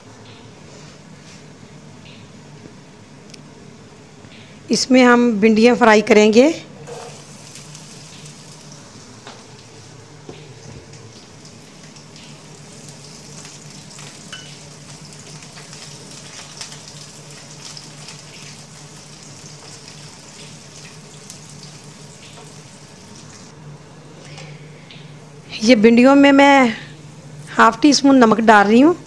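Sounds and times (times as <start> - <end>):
okra sizzling in hot oil: 6.8 - 9.8, 10.8 - 23.5.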